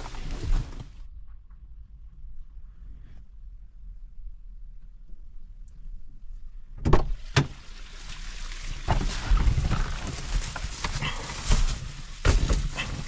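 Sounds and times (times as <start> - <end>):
plastic bag of bottles rustling: 7.6 - 13.0.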